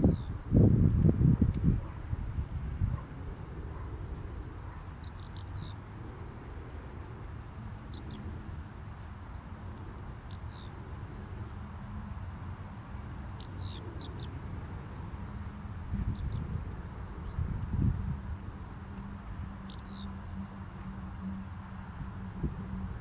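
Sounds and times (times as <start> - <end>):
bird chirping: 0.0 - 0.3, 4.6 - 5.8, 7.8 - 8.3, 10.2 - 10.8, 13.4 - 14.3, 16.0 - 16.5, 19.6 - 20.5.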